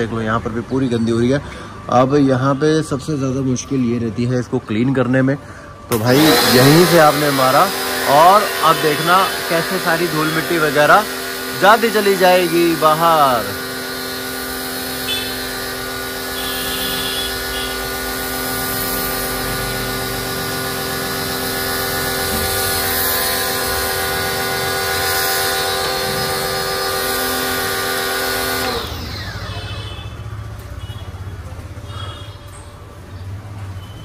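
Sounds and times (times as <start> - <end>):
pressure washer motor whine: 5.2 - 31.2
water spray hissing on car: 6.5 - 28.7.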